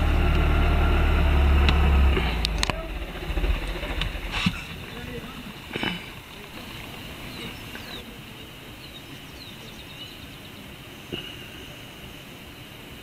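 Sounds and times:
vehicle rumble inside car: 0.0 - 8.0
bird chirps: 2.3 - 12.7.

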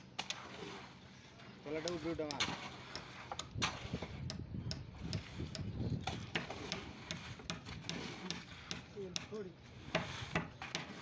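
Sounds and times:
metal shovel scraping wet concrete: 1.7 - 4.2, 6.1 - 11.0.

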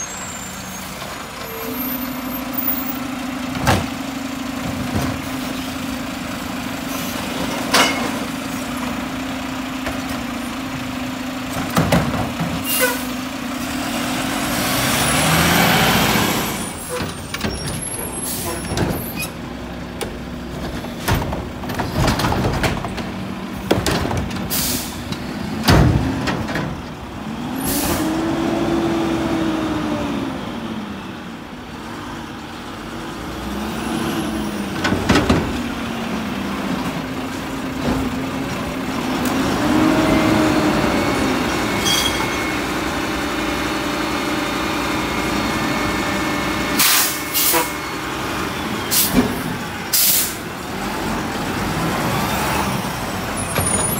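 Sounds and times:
garbage truck engine revving: 2.0 - 53.9
air brake hisses: 24.5 - 25.0, 46.8 - 47.7, 49.9 - 50.4.

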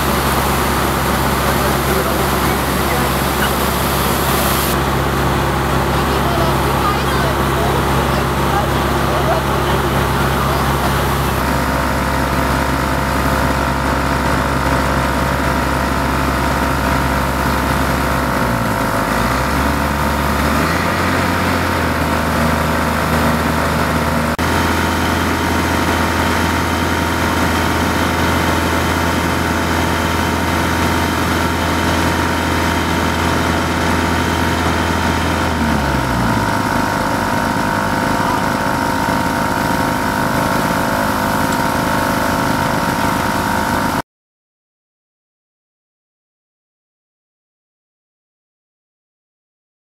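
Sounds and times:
water spraying hiss: 0.0 - 4.8
water pump engine running: 0.0 - 44.0.

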